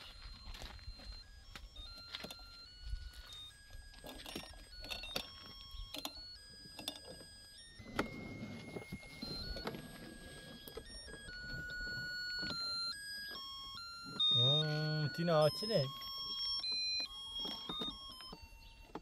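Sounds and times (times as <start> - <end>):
handling clicks and knocks: 1.8 - 2.7, 3.3 - 13.5, 15.9 - 19.0
beeping electronic tune: 7.4 - 18.9.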